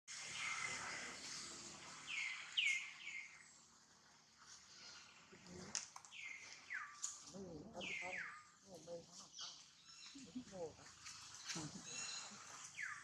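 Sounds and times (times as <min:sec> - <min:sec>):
bird chirping: 0:00.2 - 0:03.7, 0:06.0 - 0:13.0.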